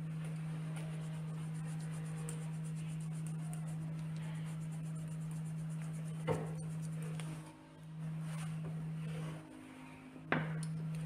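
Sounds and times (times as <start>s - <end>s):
steady low hum: 0.0s - 11.0s
pencil scratching on paper: 0.5s - 7.2s.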